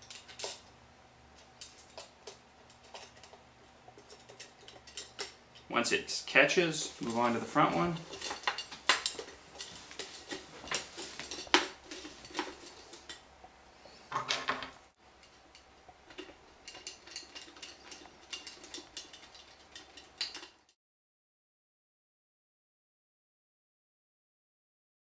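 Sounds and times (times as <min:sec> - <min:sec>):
small metal clicks and clinks: 0:00.0 - 0:00.7, 0:01.4 - 0:05.7, 0:15.2 - 0:20.8.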